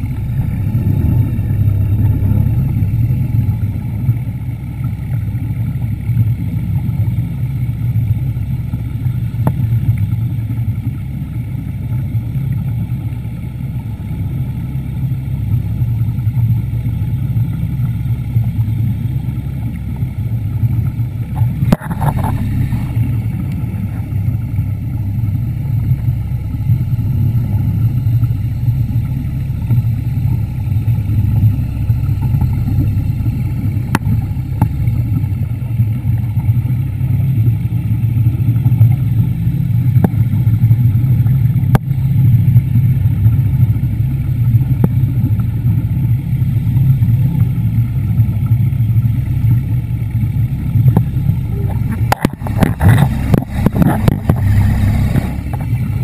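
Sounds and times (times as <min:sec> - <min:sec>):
underwater motor humming: 0:00.0 - 0:56.0.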